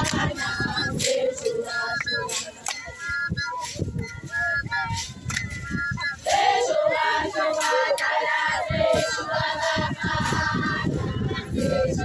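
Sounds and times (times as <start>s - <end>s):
women singing in chorus: 0.0s - 2.7s, 6.2s - 12.0s.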